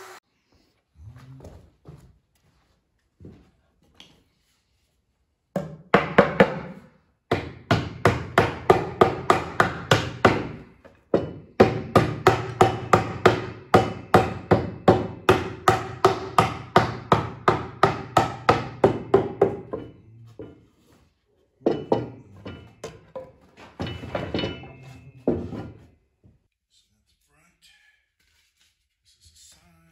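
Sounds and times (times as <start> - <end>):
hammer tapping wood: 5.6 - 20.6.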